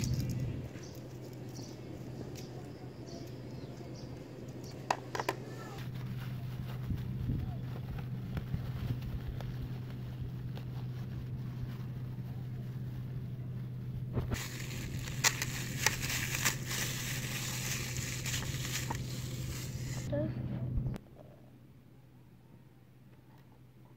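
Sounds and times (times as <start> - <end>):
steady low hum: 0.0 - 23.9
plastic bag crinkling: 14.4 - 20.1.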